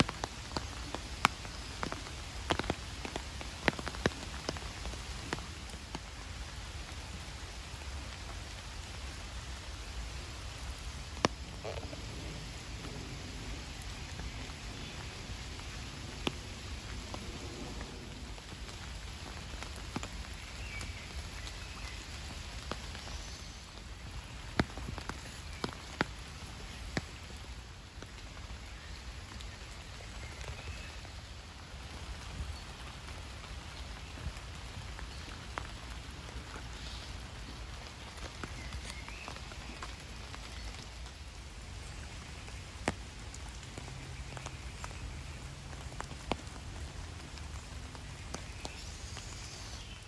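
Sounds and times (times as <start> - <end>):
light rain on a pond: 0.0 - 50.0.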